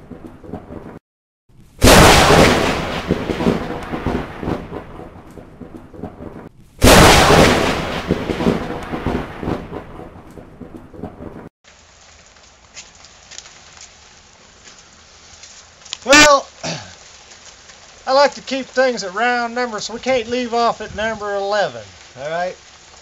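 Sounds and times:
thunderclaps rumbling: 0.0s - 11.5s
faint steady hiss: 11.7s - 23.0s.

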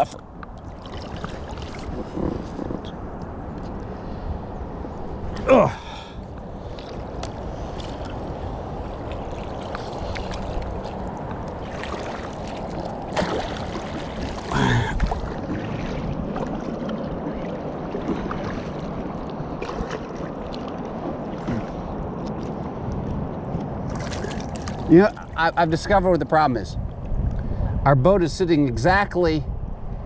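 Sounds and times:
wind and water rushing: 0.0s - 30.0s
paddles splashing in water: 0.5s - 2.9s, 5.3s - 25.5s
person grunting: 5.4s - 6.2s, 14.5s - 15.0s.

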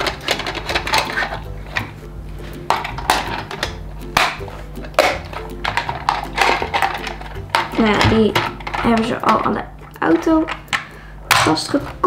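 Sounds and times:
plastic toy pieces clicking: 0.0s - 1.4s, 2.7s - 9.4s.

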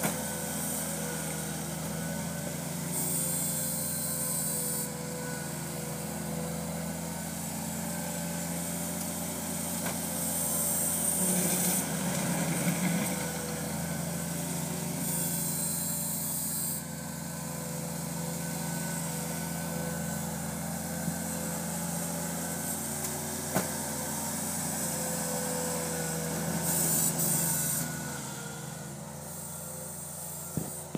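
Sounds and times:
tractor engine running: 0.0s - 30.9s.

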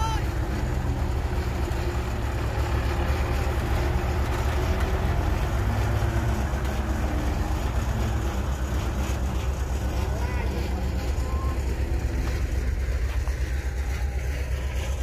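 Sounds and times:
heavy diesel engines running: 0.0s - 15.0s.

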